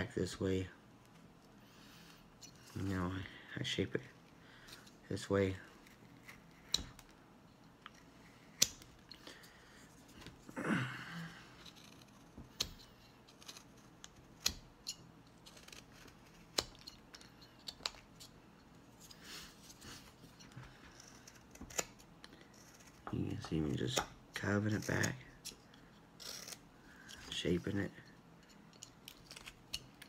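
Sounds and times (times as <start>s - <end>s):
knife shaving wood: 4.5s - 7.1s, 11.2s - 30.0s.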